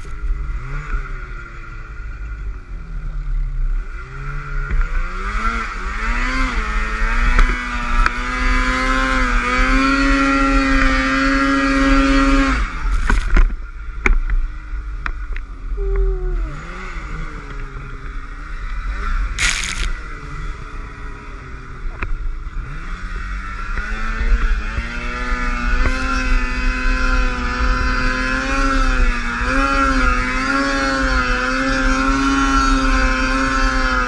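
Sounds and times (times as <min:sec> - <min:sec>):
snowmobile engine revving: 0:03.7 - 0:13.2, 0:15.6 - 0:34.0
short rush of noise: 0:19.4 - 0:20.0.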